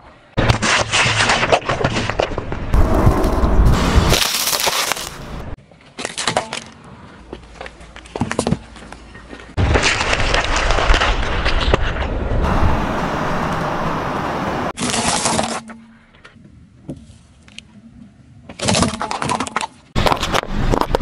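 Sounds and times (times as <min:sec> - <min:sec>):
pineapple crushed under tyre: 0:03.2 - 0:05.2.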